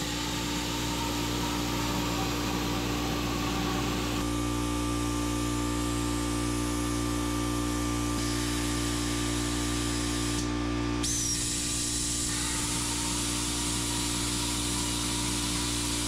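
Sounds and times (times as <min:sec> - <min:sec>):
plasma cutter hissing: 0:00.0 - 0:04.2, 0:11.0 - 0:16.0
buzzing hum: 0:00.0 - 0:16.0.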